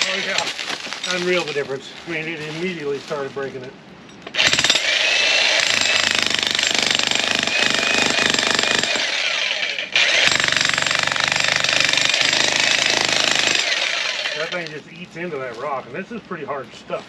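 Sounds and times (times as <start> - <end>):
demolition hammer on rock: 4.3 - 4.9, 5.6 - 9.2, 10.0 - 14.7.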